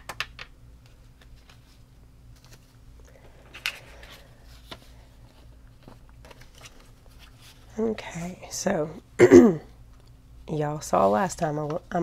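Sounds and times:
paper banknotes rustling: 3.5 - 7.7.

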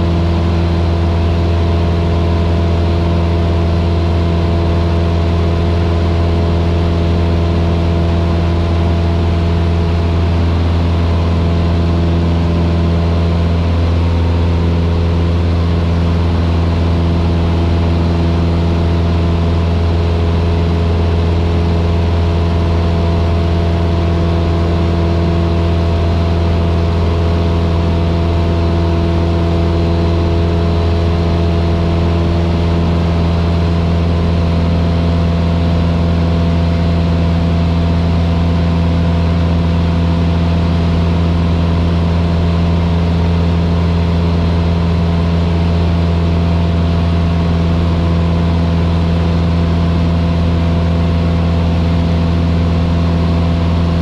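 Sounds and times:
small plane engine droning: 0.0 - 54.0.

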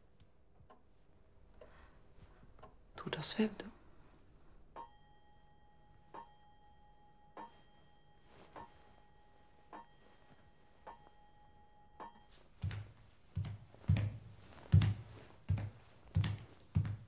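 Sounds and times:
faint clock ticks with metallic ring: 4.7 - 12.3.

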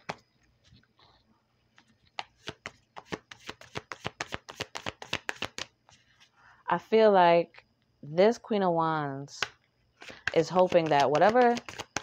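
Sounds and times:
cards being shuffled: 1.8 - 6.3, 10.0 - 12.0.

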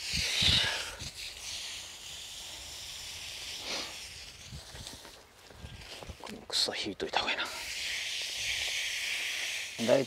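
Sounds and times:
hose nozzle spraying water: 0.0 - 5.2, 7.5 - 10.0.

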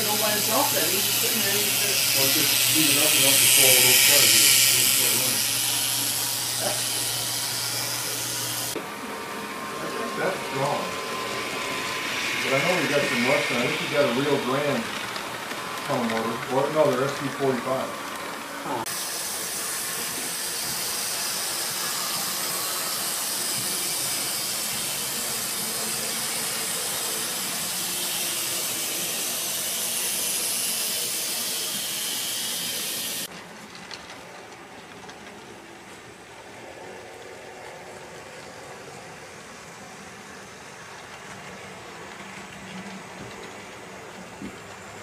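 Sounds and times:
model trains running on track: 0.0 - 45.0.

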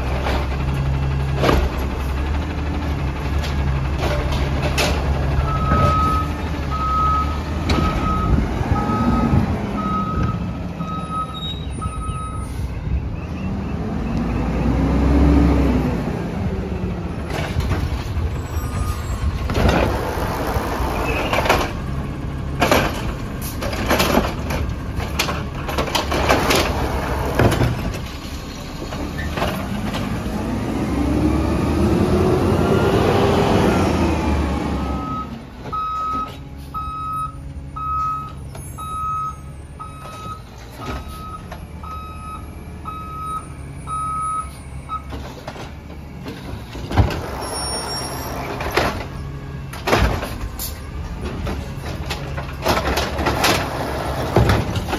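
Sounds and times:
truck engine revving: 13.4 - 35.5, 46.9 - 49.8, 52.8 - 54.9
reverse alarm beeping: 34.9 - 40.4, 41.0 - 45.1.

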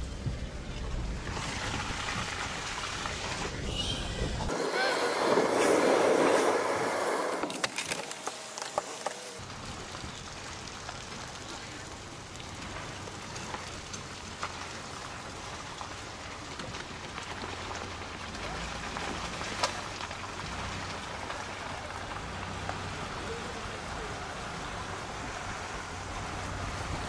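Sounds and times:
low engine hum: 8.4 - 27.0
light rain patter: 9.4 - 27.0.

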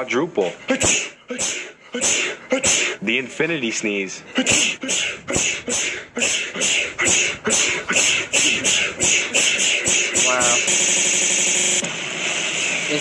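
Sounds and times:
person sneezing rapidly: 0.6 - 3.1, 4.3 - 10.8.

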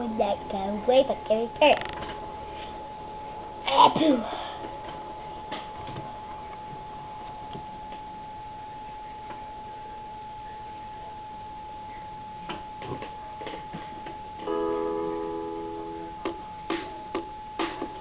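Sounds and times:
steady high whine: 0.0 - 18.0
sustained instrumental chord: 14.4 - 16.3.

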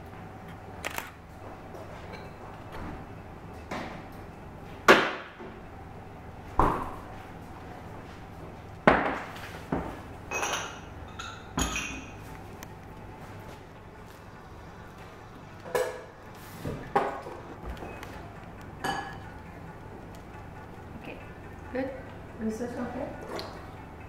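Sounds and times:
tableware knocking and clinking: 8.9 - 12.2, 18.8 - 19.3.

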